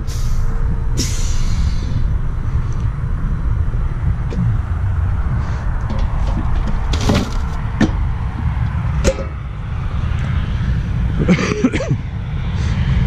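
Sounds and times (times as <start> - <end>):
low rumble: 0.0 - 13.0
rubbish clattering into a bin: 5.9 - 7.6.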